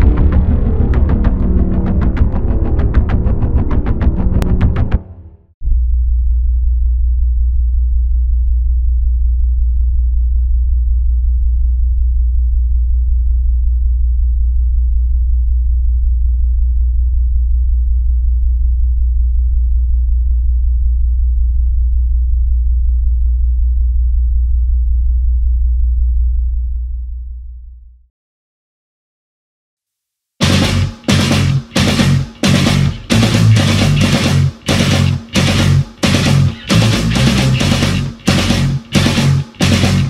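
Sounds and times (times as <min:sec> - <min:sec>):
deep low drone: 0:00.0 - 0:27.0.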